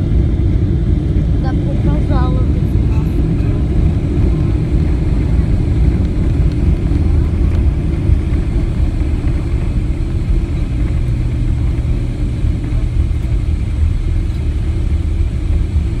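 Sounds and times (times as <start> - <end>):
jet engines rumbling: 0.0 - 16.0
wheels rolling on runway: 3.2 - 16.0.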